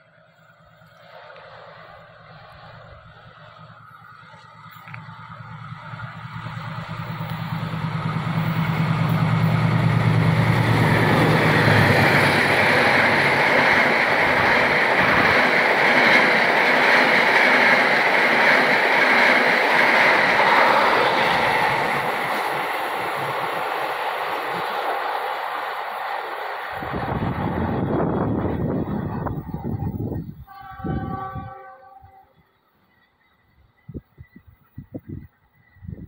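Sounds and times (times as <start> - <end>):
diesel locomotive engine hum: 0.0 - 36.0
train wheels on rails: 0.0 - 36.0.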